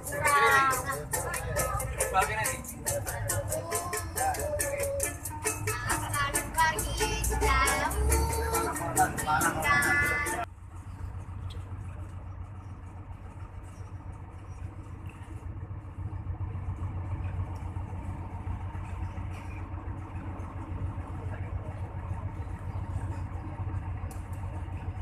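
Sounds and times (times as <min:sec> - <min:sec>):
bus diesel engine rumbling: 0:00.0 - 0:25.0.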